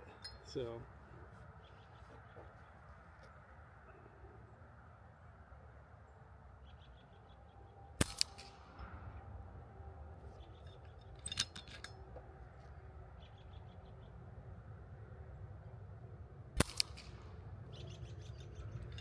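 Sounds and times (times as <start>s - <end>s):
small birds chirping: 1.4s - 3.2s, 6.5s - 7.9s, 10.3s - 11.1s, 13.1s - 14.3s, 17.4s - 19.0s
air rifle shot: 8.0s - 8.8s, 16.6s - 17.4s
metallic clicks: 10.5s - 12.2s, 18.2s - 19.0s.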